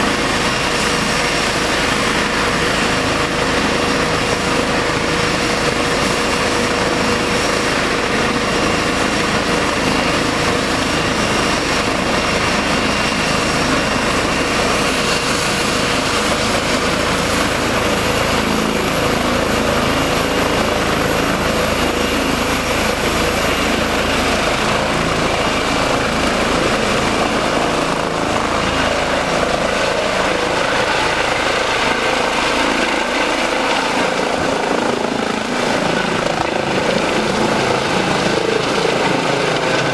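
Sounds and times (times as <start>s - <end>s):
helicopter rotor and turbine: 0.0s - 39.9s
high turbine whine: 0.0s - 39.9s.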